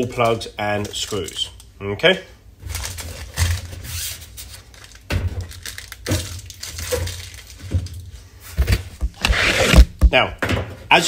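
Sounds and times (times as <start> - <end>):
plastic and paper rustling: 2.6 - 10.0.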